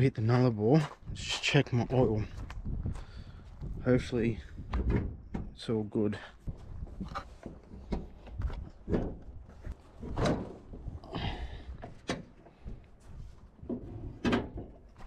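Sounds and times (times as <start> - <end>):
car knocks and clunks: 6.5 - 10.9.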